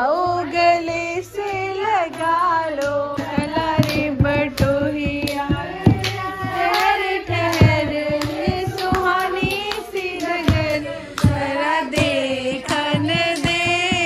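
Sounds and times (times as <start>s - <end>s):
women singing together: 0.0s - 14.0s
hand-clapping: 1.4s - 14.0s.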